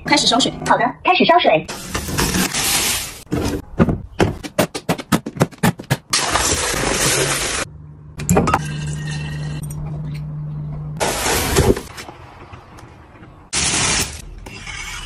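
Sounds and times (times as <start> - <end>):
foam packaging rustling: 1.8 - 3.6.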